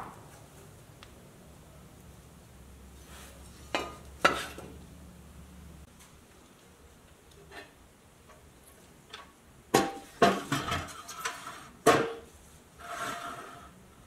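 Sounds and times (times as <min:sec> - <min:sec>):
metal scrape: 0:10.2 - 0:11.8, 0:12.8 - 0:13.8.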